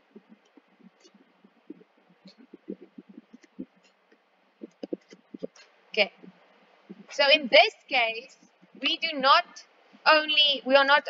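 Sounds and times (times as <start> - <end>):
stylus tapping on tablet screen: 0.0 - 5.6.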